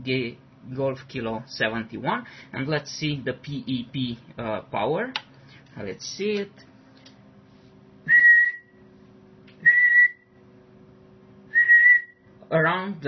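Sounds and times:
man whistling short notes: 0:08.1 - 0:08.8, 0:09.6 - 0:10.4, 0:11.5 - 0:12.3.

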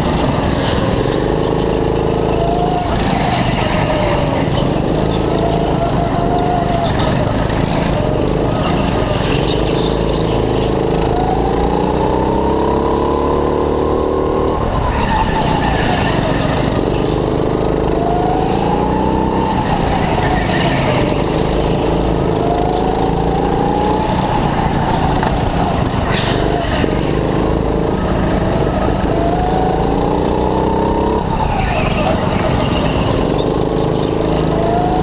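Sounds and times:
go-kart engine revving: 0:00.0 - 0:35.0
tyre squeal: 0:00.6 - 0:10.9, 0:14.6 - 0:17.3, 0:19.1 - 0:21.8, 0:31.0 - 0:35.0.

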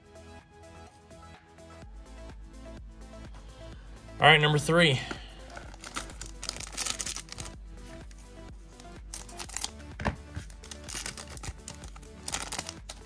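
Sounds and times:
background music: 0:00.0 - 0:13.0
wrapper crinkling and tearing: 0:05.5 - 0:07.6, 0:09.0 - 0:13.0.

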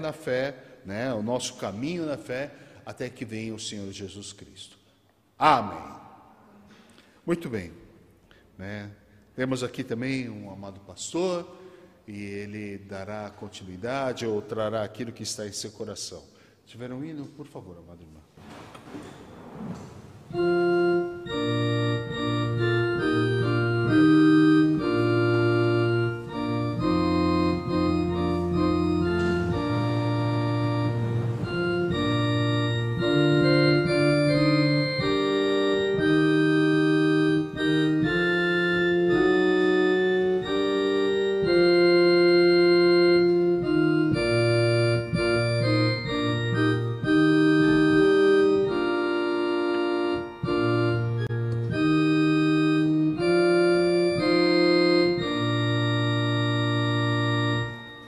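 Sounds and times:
organ playing a hymn: 0:20.3 - 0:58.0.

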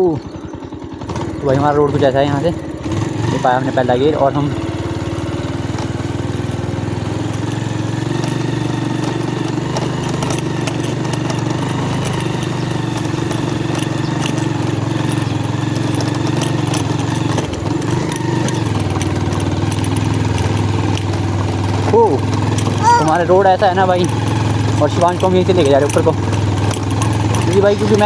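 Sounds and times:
motorcycle engine running: 0:00.0 - 0:28.0
small clicks and knocks: 0:08.2 - 0:22.8, 0:23.8 - 0:28.0.

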